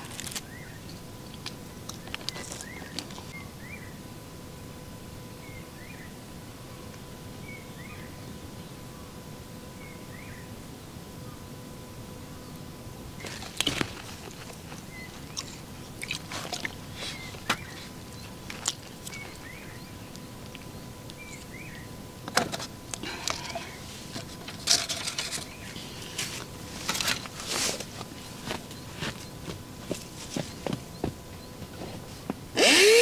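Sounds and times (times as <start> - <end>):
utensils and food being handled: 22.4 - 29.2.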